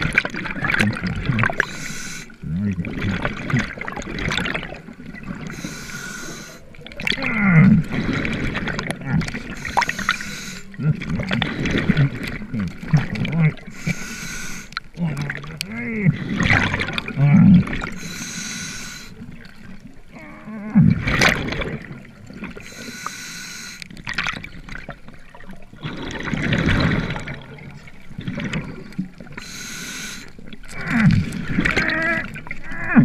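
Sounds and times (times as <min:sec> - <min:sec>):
bubbles gurgling: 0:00.0 - 0:22.8, 0:23.9 - 0:33.0
regulator breaths hissing: 0:01.6 - 0:02.4, 0:05.4 - 0:06.6, 0:09.5 - 0:10.8, 0:13.7 - 0:14.8, 0:18.0 - 0:19.2, 0:22.6 - 0:23.9, 0:29.4 - 0:30.4
low muffled moans: 0:10.7 - 0:13.6, 0:20.1 - 0:21.1.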